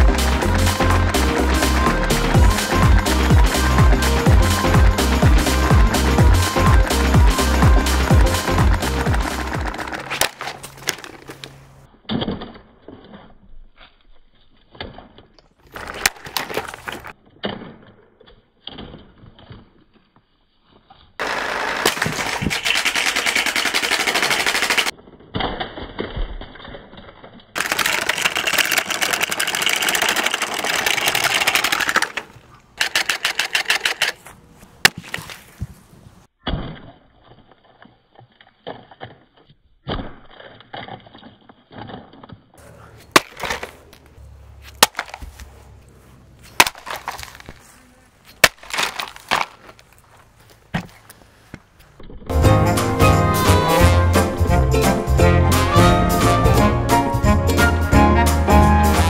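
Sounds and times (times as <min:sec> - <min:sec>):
sharp cracks: 0:06.6 - 0:12.8, 0:21.2 - 0:35.5, 0:43.1 - 0:45.4, 0:46.5 - 0:47.6, 0:48.3 - 0:50.0.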